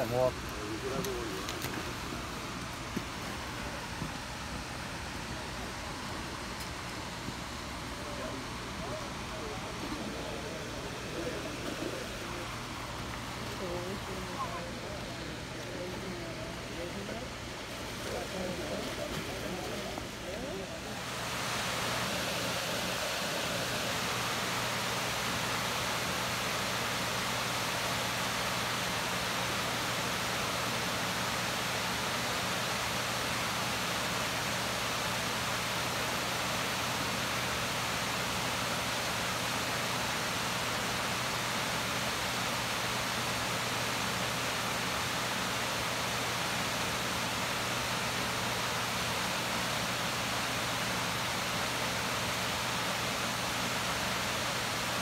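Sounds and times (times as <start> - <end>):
waterfall rushing: 17.4 - 55.0.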